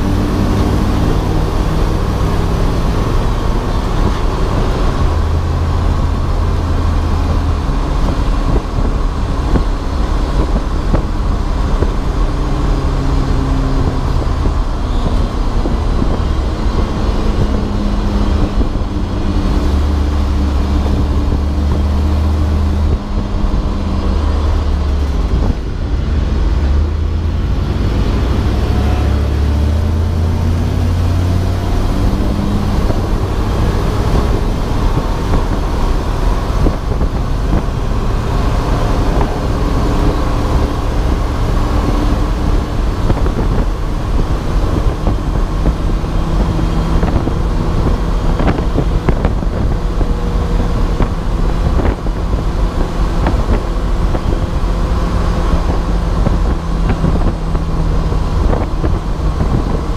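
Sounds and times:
race car engine revving: 0.0 - 59.9
road and wind noise: 0.0 - 59.9.

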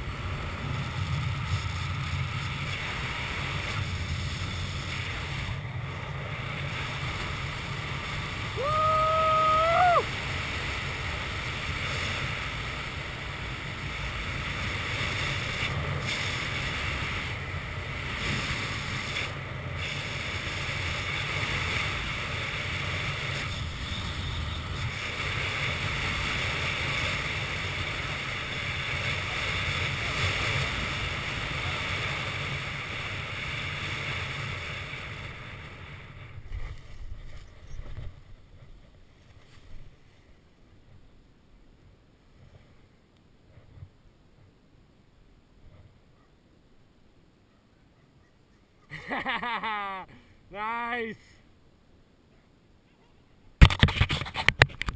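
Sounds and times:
wind rushing over microphone: 0.0 - 40.0.

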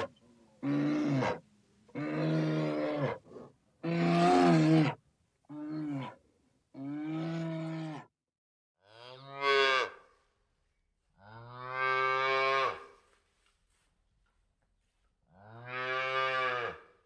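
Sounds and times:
calf mooing: 15.4 - 16.9.

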